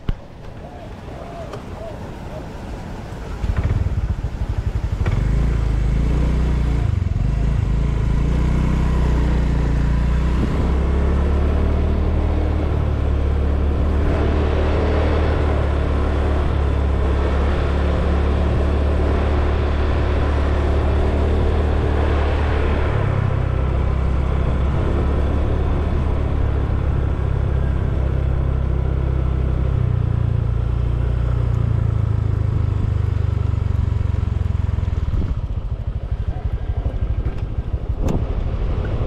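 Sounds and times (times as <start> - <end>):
motor scooter engine running: 3.4 - 10.7, 32.3 - 39.0.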